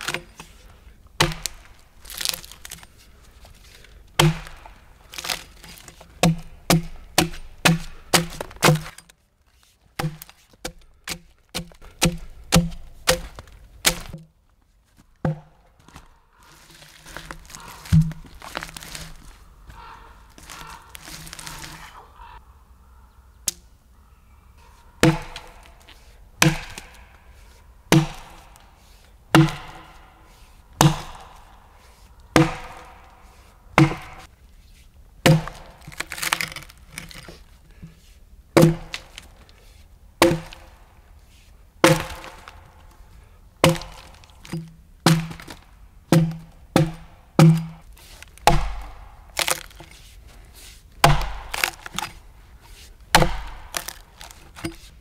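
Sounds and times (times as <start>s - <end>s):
axe chopping into log: 1.2s - 2.8s, 4.2s - 9.0s, 10.0s - 14.3s, 17.4s - 18.8s, 25.0s - 25.7s, 26.4s - 27.1s, 27.9s - 28.6s, 29.3s - 30.0s, 30.8s - 31.4s, 32.4s - 33.0s, 33.8s - 34.3s, 35.2s - 36.7s, 38.6s - 39.2s, 40.2s - 40.7s, 41.8s - 42.6s, 43.6s - 47.8s, 48.4s - 50.0s, 51.0s - 52.2s, 53.1s - 54.9s.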